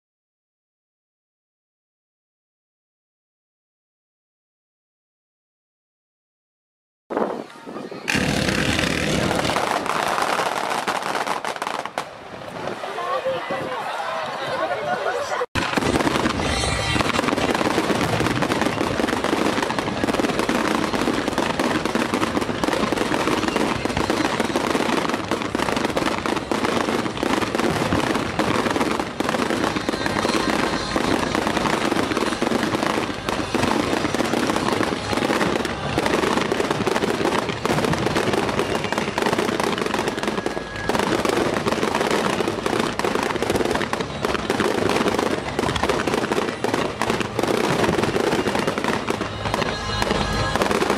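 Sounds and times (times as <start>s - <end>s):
fireworks bursting and crackling: 7.1s - 12.9s, 15.6s - 50.9s.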